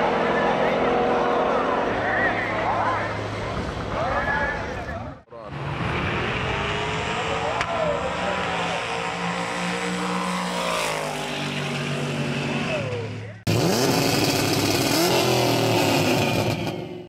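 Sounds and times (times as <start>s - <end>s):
racing truck engines: 0.0s - 17.0s
engine revving: 5.5s - 17.0s.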